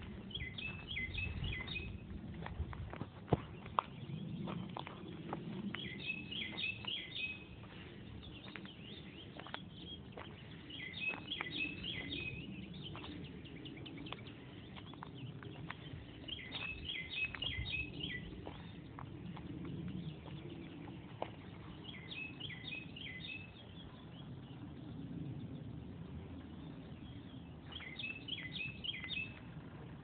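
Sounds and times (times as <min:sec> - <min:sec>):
songbird singing: 0:00.0 - 0:02.5, 0:03.3 - 0:30.0
footsteps on dry leaves: 0:00.0 - 0:22.5.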